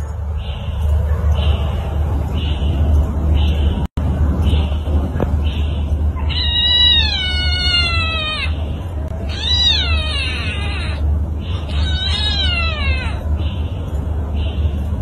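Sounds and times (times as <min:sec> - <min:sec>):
cat yowling: 0:06.2 - 0:13.3.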